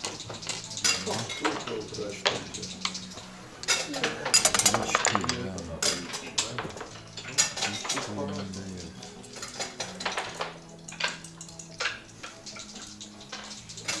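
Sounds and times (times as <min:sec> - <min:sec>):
glasses clicking and clinking: 0:00.0 - 0:14.0
low voices: 0:00.8 - 0:09.2.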